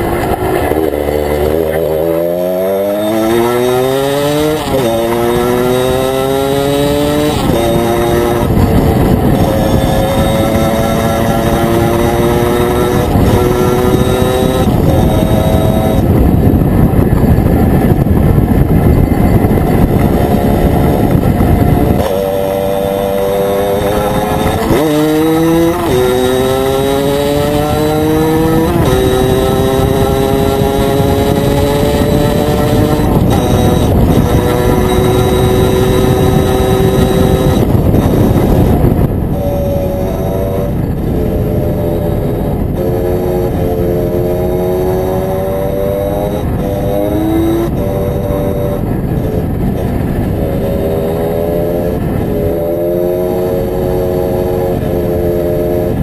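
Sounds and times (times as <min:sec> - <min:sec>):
motorcycle engine accelerating: 0:00.0 - 0:56.0
wind rush on microphone: 0:00.0 - 0:56.0.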